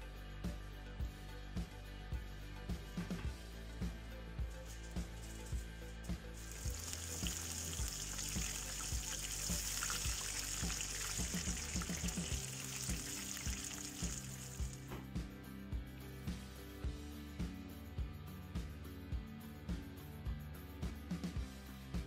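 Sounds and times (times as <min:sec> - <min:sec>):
background music with steady beat: 0:00.0 - 0:22.0
food deep-frying in oil: 0:06.4 - 0:14.9.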